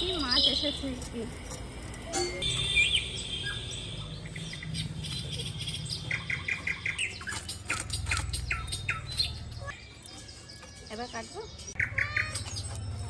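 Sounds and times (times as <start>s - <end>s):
small bird chirping: 0.0s - 13.0s.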